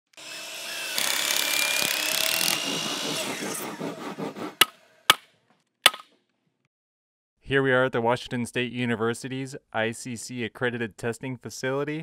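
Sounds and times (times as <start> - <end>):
power saw cutting wood: 0.1 - 5.1
sharp knocks: 5.9 - 6.1.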